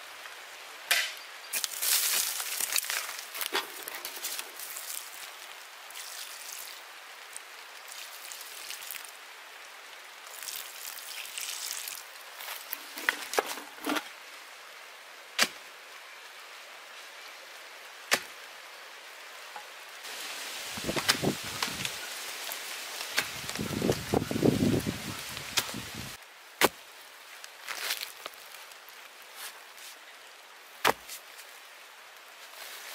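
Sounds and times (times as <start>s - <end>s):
faint outdoor hiss: 0.0s - 32.9s
rustling: 1.5s - 6.5s
water splashing onto soil: 1.5s - 9.2s, 10.2s - 13.4s.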